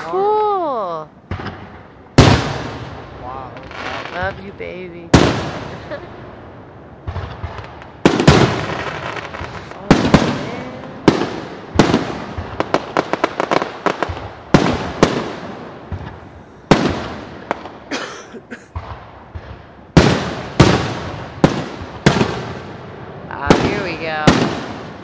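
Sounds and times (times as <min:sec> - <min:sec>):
crackling firework pops: 0:07.0 - 0:17.9, 0:18.7 - 0:22.6.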